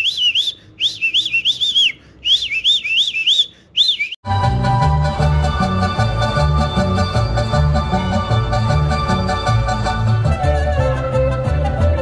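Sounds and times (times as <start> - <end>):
chirping whistled notes: 0.0 - 4.2
music with steady beat: 4.2 - 12.0.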